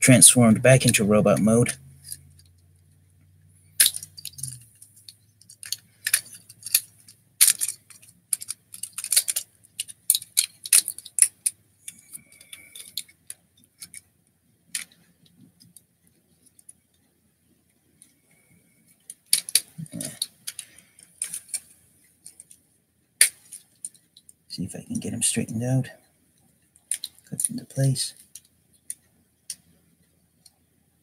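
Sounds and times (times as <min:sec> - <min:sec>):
plastic toy clicks and snaps: 0:07.4 - 0:11.6.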